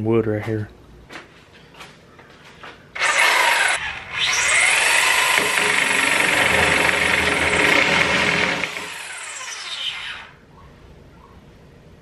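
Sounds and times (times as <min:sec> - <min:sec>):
reciprocating saw cutting wood: 0:03.0 - 0:10.4.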